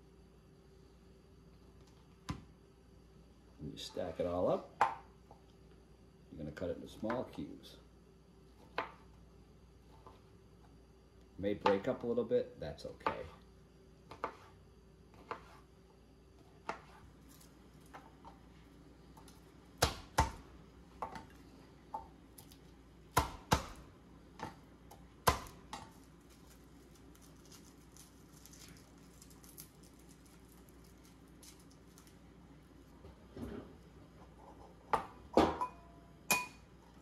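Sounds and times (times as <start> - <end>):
knife chopping on plastic board: 14.1 - 14.5, 15.1 - 15.6, 23.1 - 23.8, 25.2 - 25.9
garlic peeling clicks and rustles: 25.9 - 32.2.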